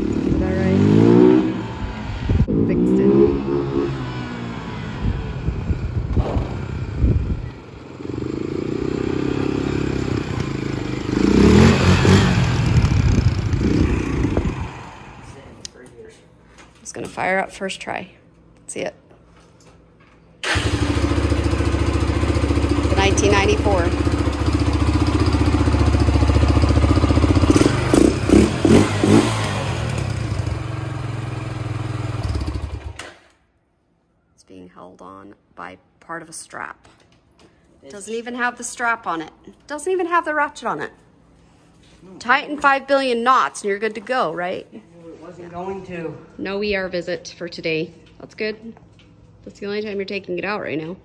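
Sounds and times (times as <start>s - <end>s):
atv engine revving: 0.0s - 15.4s, 20.4s - 33.0s.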